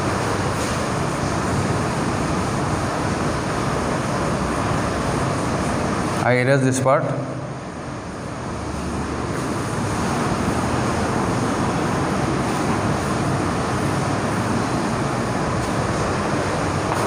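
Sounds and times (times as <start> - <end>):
steady background noise: 0.0 - 17.0.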